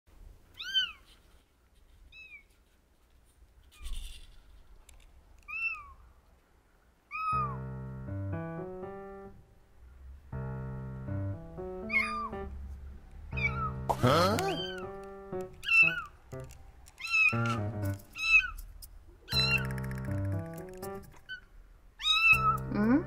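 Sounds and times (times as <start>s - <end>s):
kitten meowing: 0.6s - 1.1s, 7.1s - 7.6s, 11.9s - 12.3s, 13.4s - 14.9s, 15.6s - 16.2s, 17.0s - 17.5s, 18.2s - 18.6s, 19.3s - 19.8s, 22.0s - 23.0s
light piano background music: 7.2s - 21.4s, 22.0s - 23.0s.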